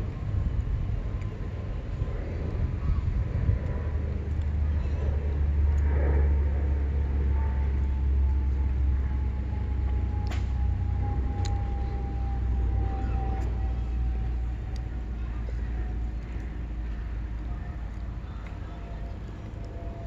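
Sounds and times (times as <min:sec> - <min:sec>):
distant engine rumble: 0:00.0 - 0:20.0
thin falling whine: 0:06.4 - 0:16.1.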